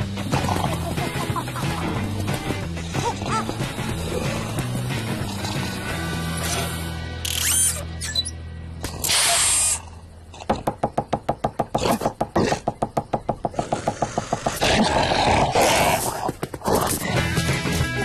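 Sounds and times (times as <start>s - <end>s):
fast run of knocks: 10.5s - 14.6s.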